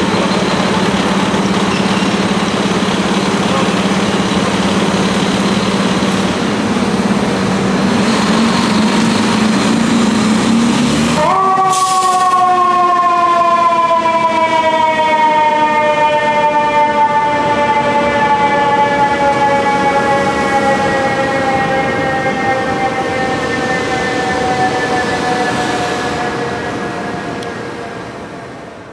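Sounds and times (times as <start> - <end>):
fire truck diesel engine: 0.0 - 28.9
mechanical siren wailing: 10.7 - 28.2.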